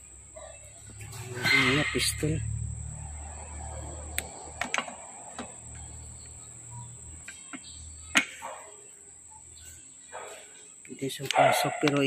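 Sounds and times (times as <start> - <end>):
low hum: 0.0 - 8.1
steady high whine: 0.0 - 11.2.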